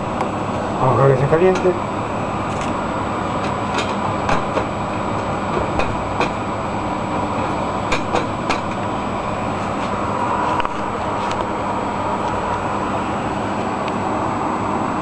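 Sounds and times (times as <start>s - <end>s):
gas burner hissing: 0.0s - 15.0s.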